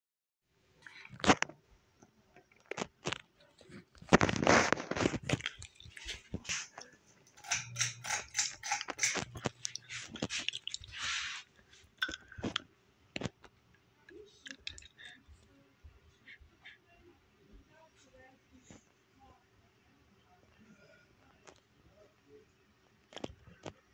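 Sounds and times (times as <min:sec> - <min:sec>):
faint low hum: 0:00.5 - 0:23.9
crunchy rustling handling noise: 0:02.5 - 0:12.6.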